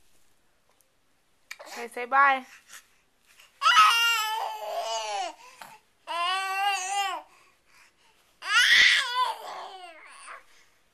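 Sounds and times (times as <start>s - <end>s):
infant cooing and babbling: 3.5s - 7.4s, 8.4s - 10.6s.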